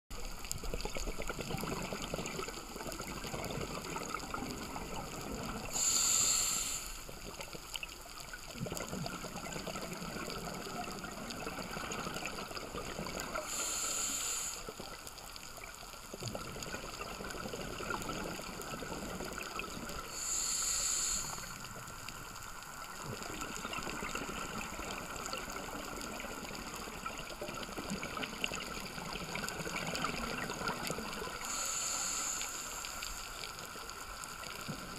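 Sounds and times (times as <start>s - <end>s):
exhaled air bubbling: 0.1s - 34.9s
hissing regulator breaths: 5.7s - 7.1s, 13.3s - 14.8s, 20.1s - 21.8s, 31.3s - 33.4s.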